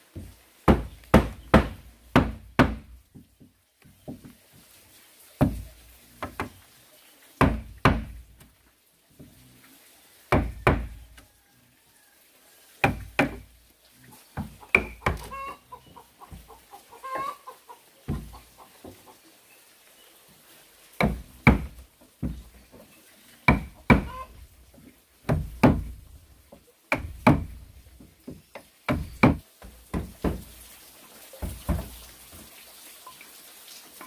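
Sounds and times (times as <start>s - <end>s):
sharp knocking on wood: 0.2s - 3.3s, 6.2s - 6.6s, 7.4s - 8.3s, 10.3s - 11.0s, 12.8s - 13.4s, 14.4s - 15.3s, 18.1s - 18.4s, 21.0s - 22.5s, 23.5s - 24.3s, 25.3s - 26.1s, 26.9s - 27.7s, 28.3s - 30.5s, 31.4s - 32.0s
chicken clucking: 14.6s - 19.3s, 24.1s - 24.3s.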